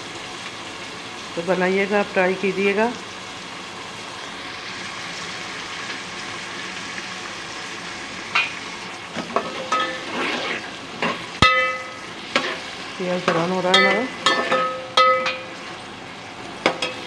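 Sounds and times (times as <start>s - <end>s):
onions sizzling in oil: 0.0s - 17.0s
metal spoon scraping pot: 9.2s - 15.5s
ringing metal clank: 11.4s - 12.1s, 13.7s - 15.5s.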